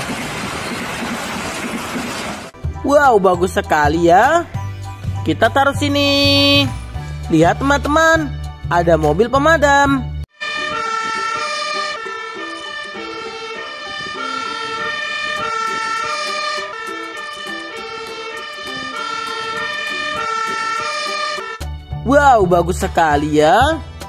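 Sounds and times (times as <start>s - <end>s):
fire engine two-tone siren: 10.3s - 21.7s.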